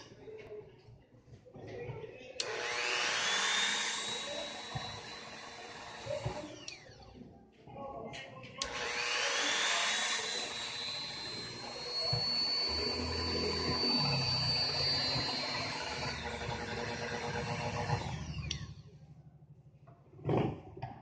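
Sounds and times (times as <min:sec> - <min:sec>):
rotary tool motor whine: 0:02.4 - 0:07.2, 0:08.6 - 0:19.0.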